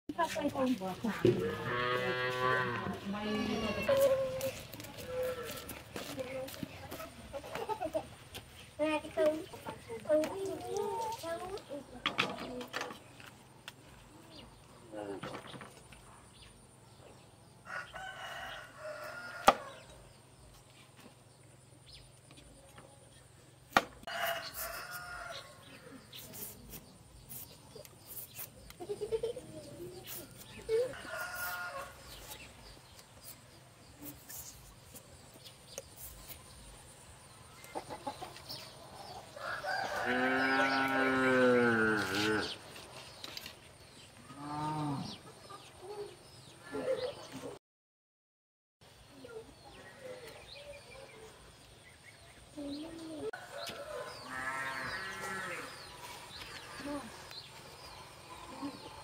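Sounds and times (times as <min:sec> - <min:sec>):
rooster crowing: 0:17.6 - 0:19.8, 0:24.1 - 0:25.7, 0:30.9 - 0:32.0, 0:39.4 - 0:42.6
chicken calls: 0:37.5 - 0:42.6.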